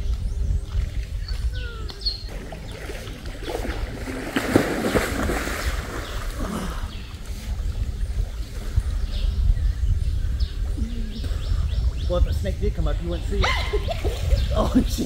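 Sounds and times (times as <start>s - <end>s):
water splashing: 0.7s - 9.0s.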